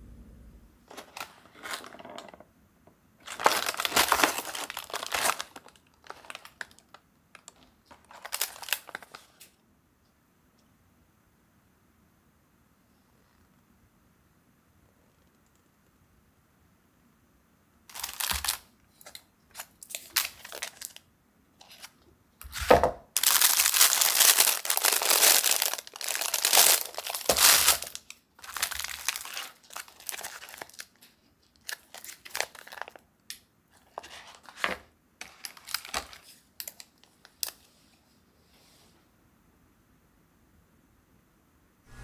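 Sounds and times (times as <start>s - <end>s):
plastic packaging crinkling: 0.9s - 2.4s, 3.2s - 9.5s, 17.9s - 21.0s, 21.6s - 33.0s, 33.9s - 37.6s.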